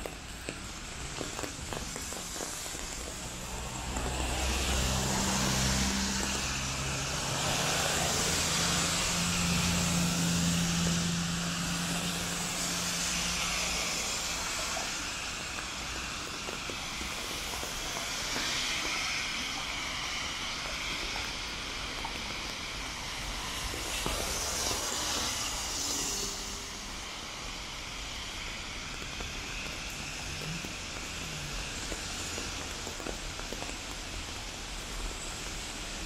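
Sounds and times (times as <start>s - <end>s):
tyres hissing on wet road: 0.0s - 36.0s
passing vehicle engine hum: 1.9s - 16.1s.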